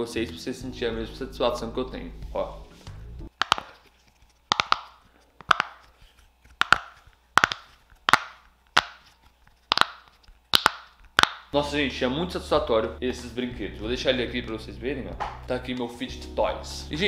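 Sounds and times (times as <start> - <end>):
fidget toy bubbles popping: 3.4 - 3.8, 4.5 - 5.8, 6.6 - 9.0, 9.7 - 11.5.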